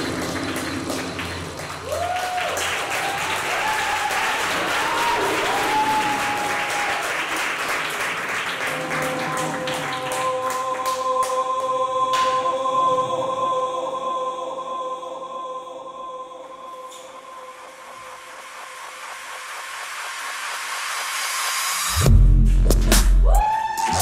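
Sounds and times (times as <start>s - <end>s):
audience applauding: 0.0s - 11.4s
dance music: 16.9s - 24.0s.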